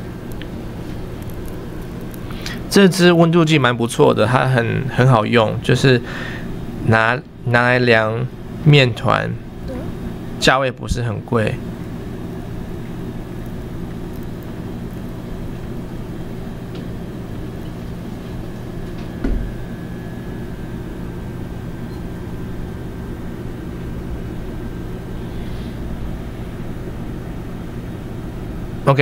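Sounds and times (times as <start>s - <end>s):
low mechanical hum: 0.0s - 29.0s
low thump: 19.2s - 19.6s.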